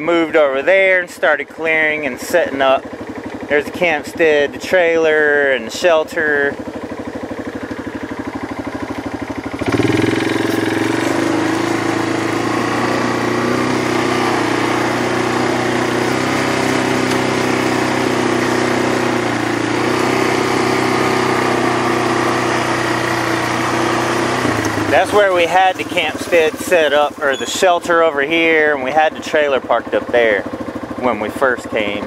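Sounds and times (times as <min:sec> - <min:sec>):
small vehicle engine running: 0:00.0 - 0:32.0.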